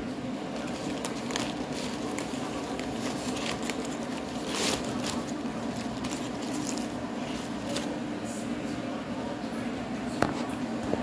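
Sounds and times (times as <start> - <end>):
steady low hum: 0.0 - 11.0
paper wrapper crinkling: 0.4 - 8.0.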